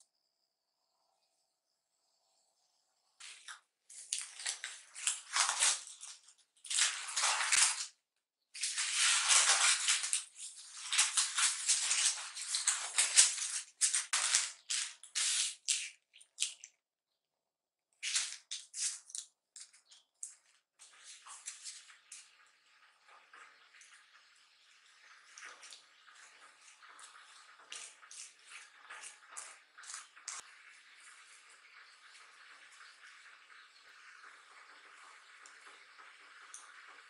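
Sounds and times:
paper rustling and crinkling: 0:03.2 - 0:07.9, 0:08.6 - 0:16.0.

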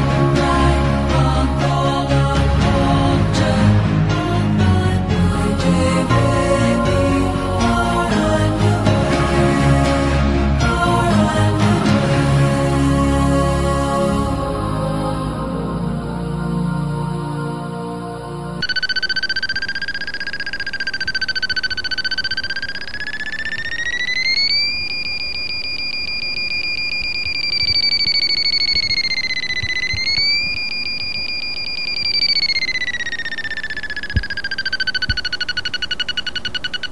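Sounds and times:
fast electronic beeps: 0:18.6 - 0:36.9.

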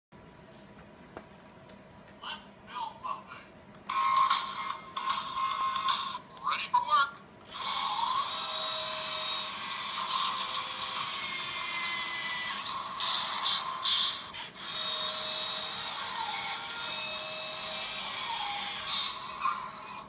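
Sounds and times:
toy electric motor whirring: 0:03.9 - 0:06.2, 0:07.5 - 0:20.0.

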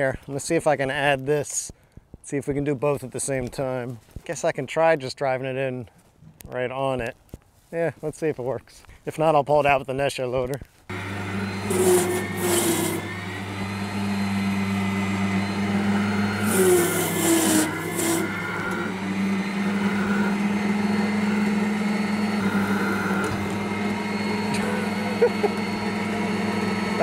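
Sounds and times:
loader motor humming: 0:10.9 - 0:27.0
bucket scraping wooden poles: 0:11.4 - 0:13.1, 0:16.1 - 0:19.7.

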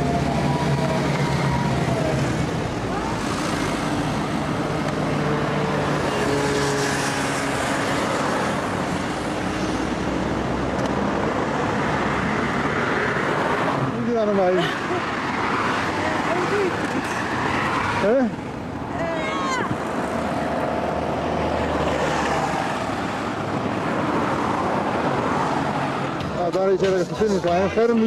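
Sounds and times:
cars driving by: 0:00.0 - 0:28.0.

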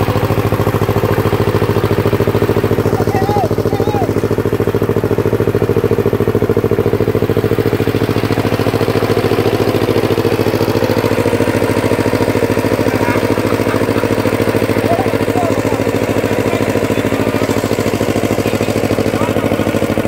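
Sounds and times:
power tiller engine running: 0:00.0 - 0:20.0.

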